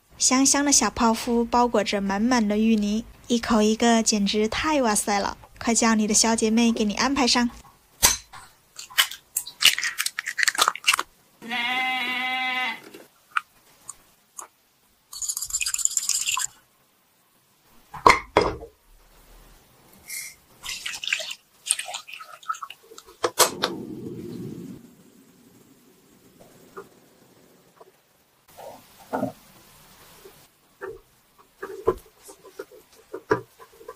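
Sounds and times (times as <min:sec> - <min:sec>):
eggs cracked into ceramic bowl: 0:08.0 - 0:11.1.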